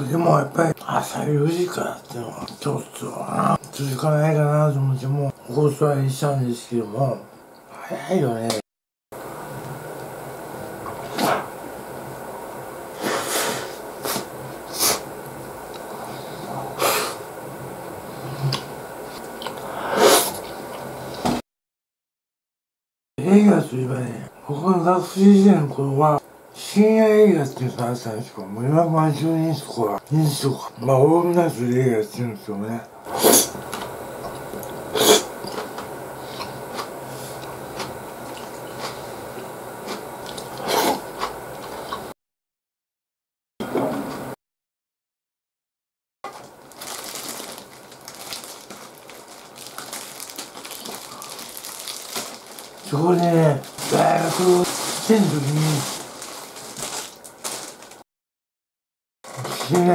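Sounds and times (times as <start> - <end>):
man sniffing and exhaling: 13.0 - 15.1, 19.6 - 20.4
person chewing food: 36.4 - 42.0, 46.8 - 52.8.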